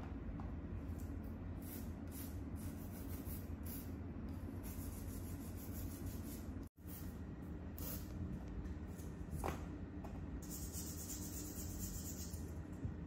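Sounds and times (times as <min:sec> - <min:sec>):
steady low hum: 0:00.0 - 0:13.0
nail file rasping on fingernails: 0:10.4 - 0:12.4.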